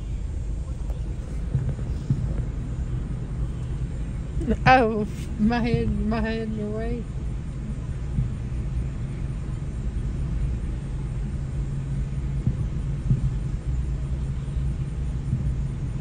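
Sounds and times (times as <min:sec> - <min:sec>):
car engine hum from inside: 0:00.0 - 0:16.0
distant fireworks thumps: 0:00.6 - 0:06.4, 0:08.0 - 0:08.6, 0:12.4 - 0:13.6.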